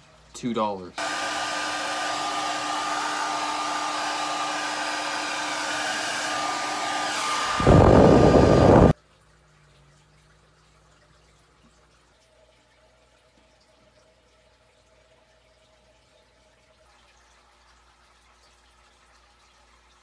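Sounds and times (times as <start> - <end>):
hair dryer blowing: 1.0 - 9.0.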